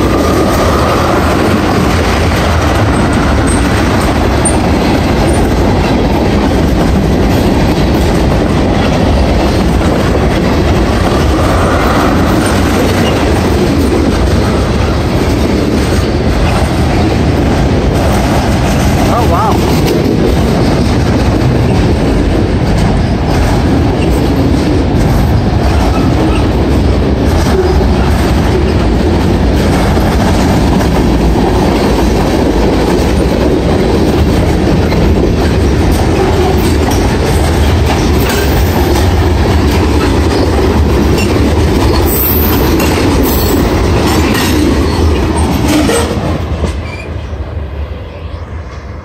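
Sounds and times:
steel wheels clattering over rail joints: 0.0 - 47.2
freight train rumbling past: 0.0 - 49.0.

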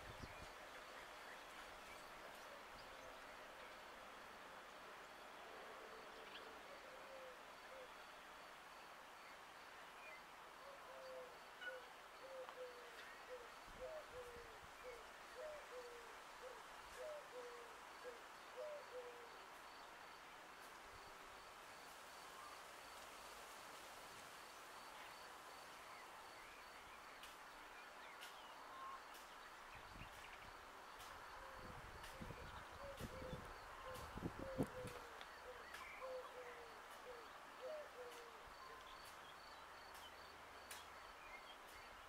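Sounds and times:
bird hooting: 10.7 - 19.3, 32.2 - 38.8.

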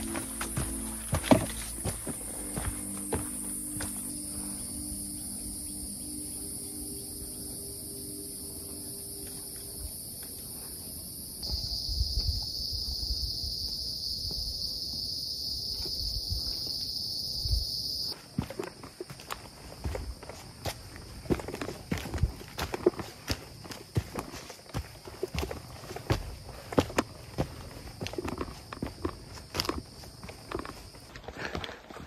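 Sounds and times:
footsteps on dirt: 0.0 - 4.7, 11.4 - 32.0
insect chorus buzzing: 0.0 - 31.8.

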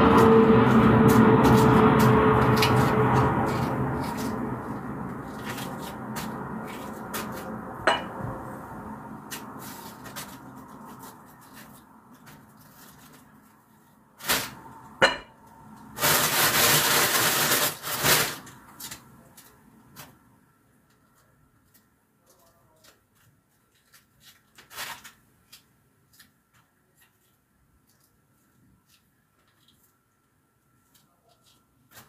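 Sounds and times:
rustling: 9.3 - 14.8.

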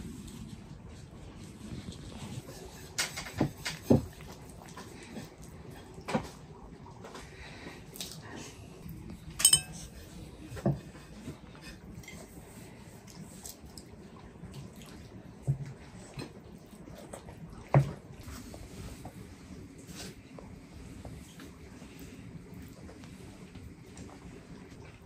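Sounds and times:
sharp ringing clink of tableware: 9.4 - 9.8
utensils knocking on clay plates: 9.4 - 9.9.

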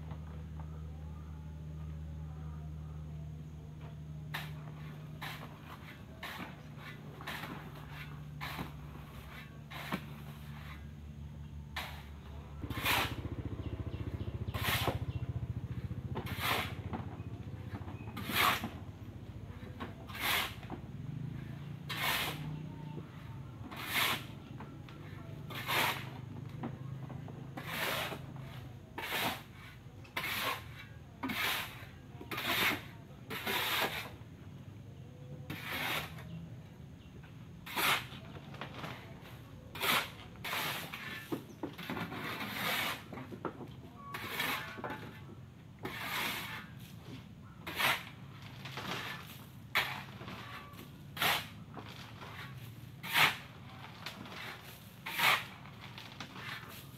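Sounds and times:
shovel scraping crushed stone: 4.3 - 10.9, 11.8 - 13.5, 14.5 - 15.0, 16.2 - 18.8, 19.6 - 20.7, 21.6 - 22.5, 23.2 - 26.2, 27.5 - 34.2, 35.5 - 36.4, 37.6 - 43.4, 44.0 - 56.9.

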